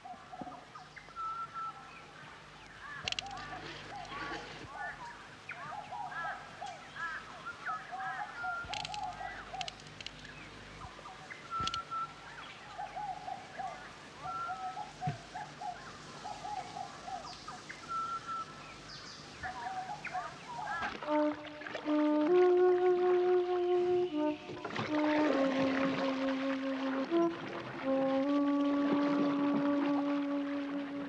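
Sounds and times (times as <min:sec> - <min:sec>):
birds chattering and whistling: 0:00.0 - 0:21.2
sharp clicks: 0:03.0 - 0:03.4, 0:08.6 - 0:10.4, 0:11.6 - 0:11.9.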